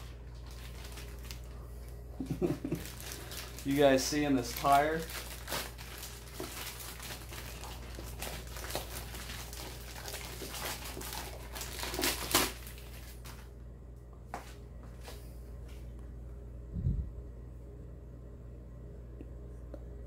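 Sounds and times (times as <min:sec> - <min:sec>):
plastic bag crinkling: 0:00.0 - 0:13.5.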